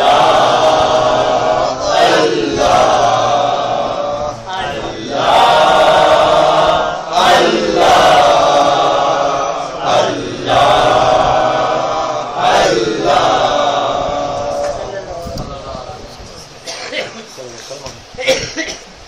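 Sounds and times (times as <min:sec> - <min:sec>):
group of voices chanting: 0:00.0 - 0:15.1.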